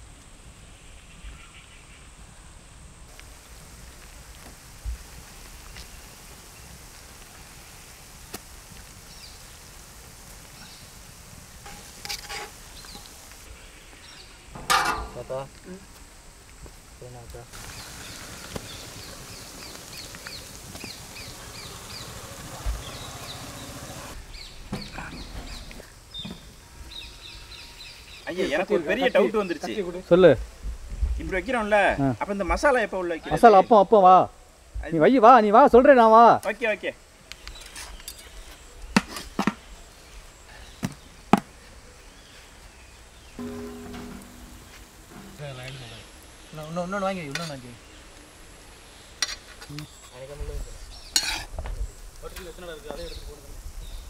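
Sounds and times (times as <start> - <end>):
faint outdoor background: 0.0 - 54.0
butter sizzling on a pan: 3.1 - 13.5, 17.6 - 24.2
cooking utensils knocking: 14.6 - 15.3, 43.4 - 45.4.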